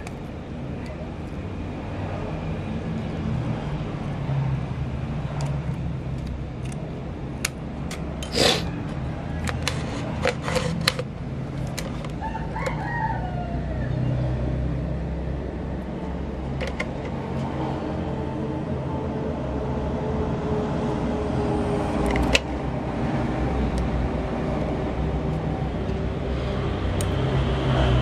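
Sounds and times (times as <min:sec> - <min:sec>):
rooster crowing: 0:12.2 - 0:14.3.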